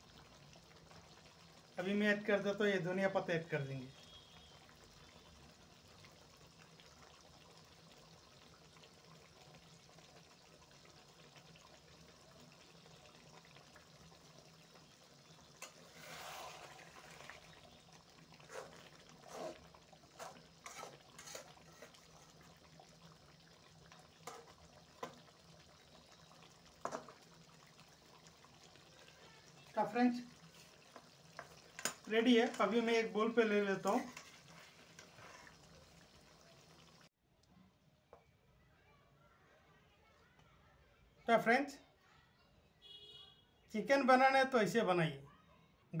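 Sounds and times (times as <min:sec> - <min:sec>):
metal spoon stirring curry in pan: 0:15.4 - 0:17.4, 0:18.4 - 0:22.6, 0:24.1 - 0:25.2, 0:33.8 - 0:35.5
spoon knocking and scraping pan: 0:18.5 - 0:22.5, 0:24.2 - 0:25.2, 0:26.8 - 0:27.2, 0:33.8 - 0:35.5.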